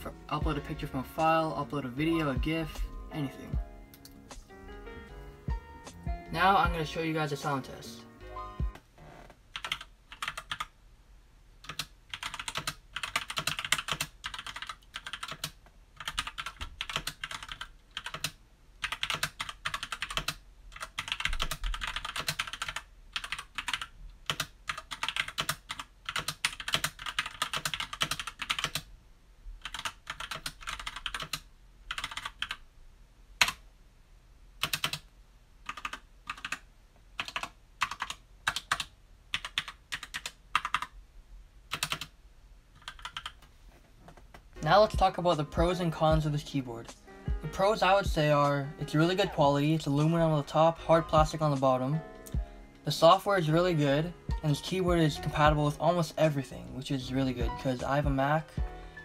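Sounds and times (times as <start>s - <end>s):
mechanical keyboard typing: 9.6s - 10.7s, 11.6s - 28.9s, 29.6s - 32.6s, 34.6s - 35.1s, 35.7s - 36.6s, 37.2s - 40.9s, 41.7s - 42.1s, 42.8s - 43.4s.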